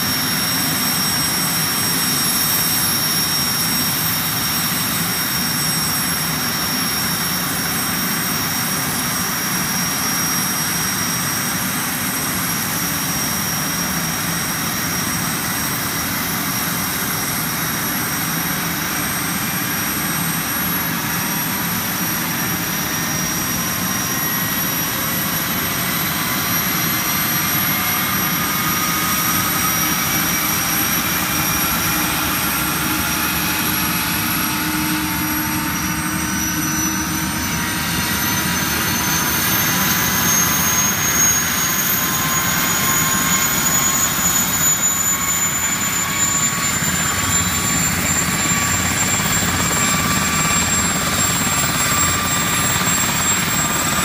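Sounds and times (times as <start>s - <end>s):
helicopter turbine whine: 0.0s - 54.0s
rotor tones rising in pitch: 19.6s - 54.0s.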